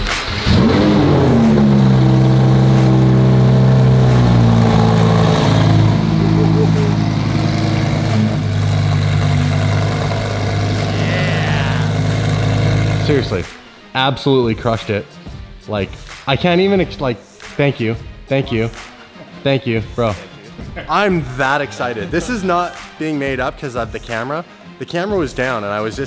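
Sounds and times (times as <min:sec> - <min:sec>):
car engine starting and revving: 0:00.0 - 0:13.6
car engine idling: 0:00.2 - 0:13.6.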